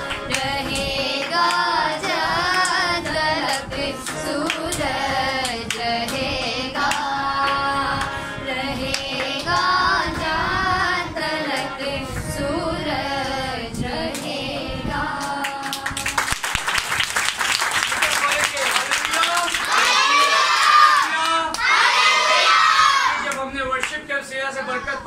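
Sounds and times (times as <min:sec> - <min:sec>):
hand clapping: 0:00.0 - 0:01.8, 0:02.5 - 0:08.2, 0:15.2 - 0:21.7, 0:23.3 - 0:24.0
group singing: 0:00.0 - 0:16.4.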